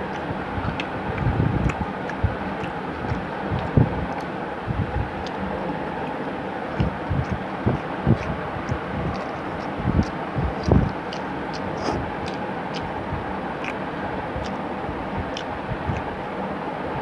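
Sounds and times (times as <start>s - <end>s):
man chewing food: 0.0s - 16.3s
rushing background noise: 0.0s - 17.0s
soft low thumps: 6.8s - 11.0s.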